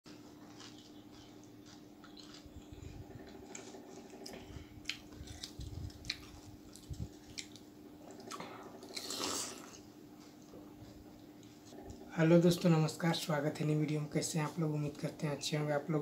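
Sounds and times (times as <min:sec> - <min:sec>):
wet crunch of eating: 0:00.1 - 0:10.5.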